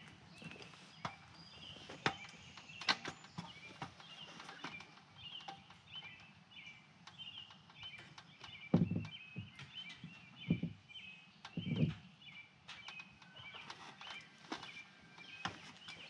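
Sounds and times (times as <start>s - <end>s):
bird chirps: 0.0s - 16.0s
dull knocks on wooden wall: 8.7s - 9.6s.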